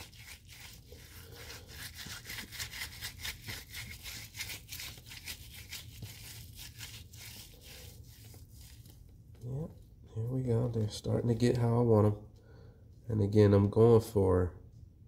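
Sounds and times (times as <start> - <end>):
squishing of hands rolling wet leaves: 0.0 - 9.2.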